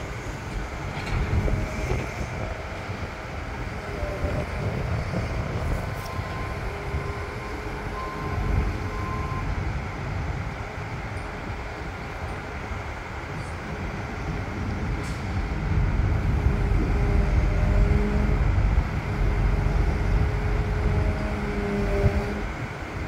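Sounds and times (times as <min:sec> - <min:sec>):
excavator diesel engine rumbling: 0:00.0 - 0:23.0.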